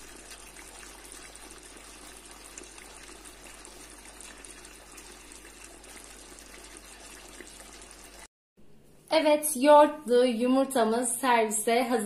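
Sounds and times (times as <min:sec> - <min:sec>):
eggs sizzling in pan: 0:00.0 - 0:08.3.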